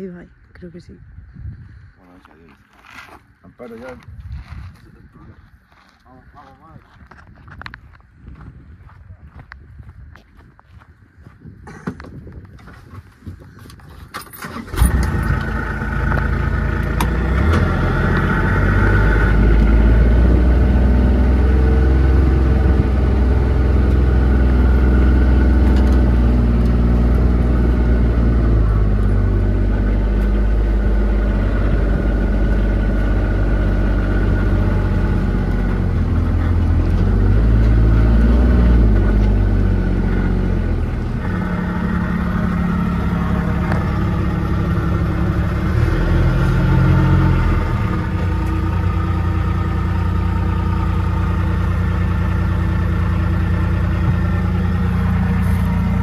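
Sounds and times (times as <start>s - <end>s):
vehicle engine starting and running: 11.6s - 56.0s.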